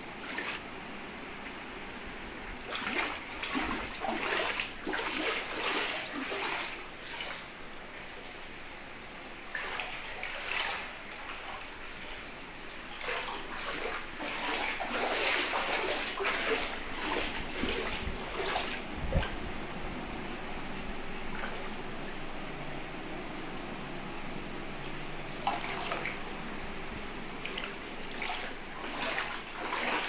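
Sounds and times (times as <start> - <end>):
wading splashes in water: 0.0 - 0.6, 2.6 - 8.4, 9.4 - 21.9, 25.4 - 30.0.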